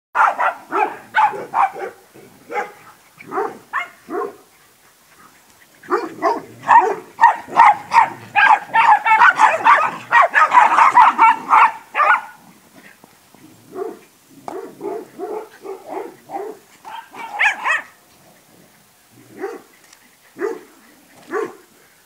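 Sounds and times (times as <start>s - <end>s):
dogs barking: 0.2s - 4.5s, 5.8s - 12.4s, 13.7s - 18.0s, 19.3s - 19.7s, 20.4s - 21.7s.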